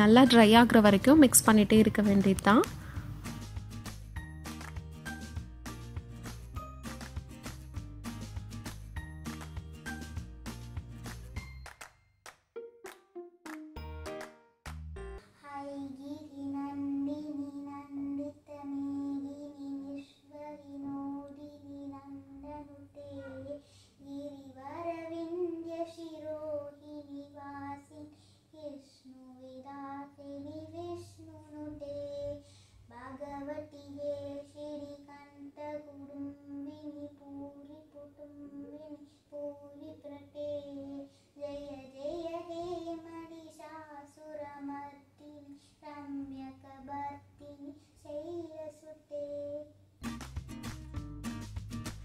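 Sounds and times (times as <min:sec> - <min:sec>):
girl singing prayer song: 0:15.2 - 0:49.8.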